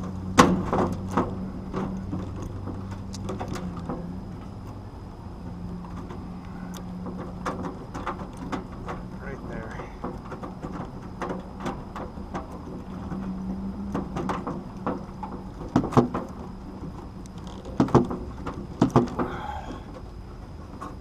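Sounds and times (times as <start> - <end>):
steady low hum: 0.0 - 21.0
hand tools clicking and knocking: 5.8 - 20.0.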